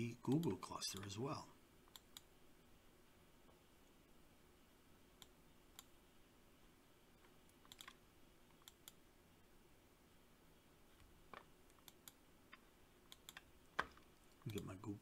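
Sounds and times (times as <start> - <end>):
faint computer mouse clicks: 1.9 - 2.3, 5.2 - 5.9, 7.2 - 9.0, 11.4 - 14.6.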